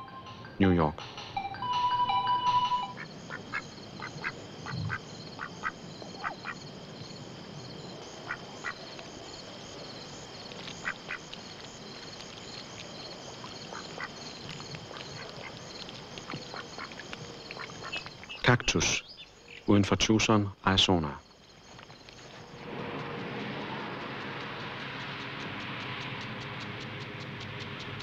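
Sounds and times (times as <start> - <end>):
insects chirping: 0.0 - 28.0
sharp animal calls: 2.8 - 6.6.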